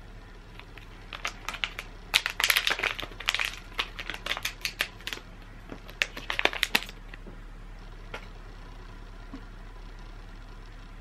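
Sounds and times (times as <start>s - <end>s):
foil pouch crinkling and tearing: 0.5s - 7.2s.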